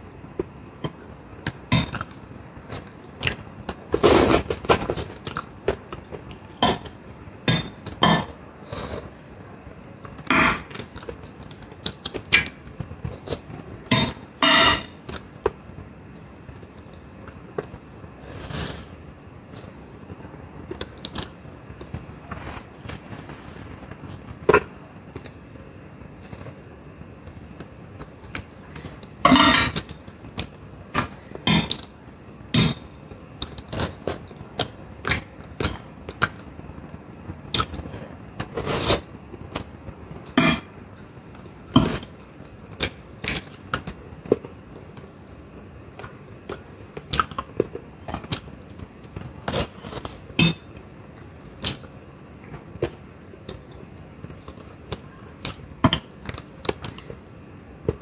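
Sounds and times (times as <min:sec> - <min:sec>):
fork scraping on plate: 0:14.4 - 0:14.9.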